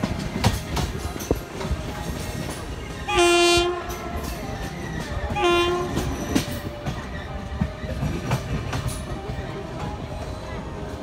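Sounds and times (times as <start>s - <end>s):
train wheels clattering over rail joints: 0.0s - 11.0s
train air horn blasts: 3.1s - 4.0s, 5.3s - 6.1s.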